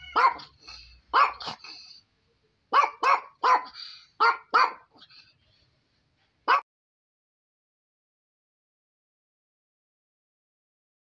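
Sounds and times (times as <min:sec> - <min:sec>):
dog barking: 0:00.0 - 0:01.8, 0:02.7 - 0:05.1, 0:06.4 - 0:06.6.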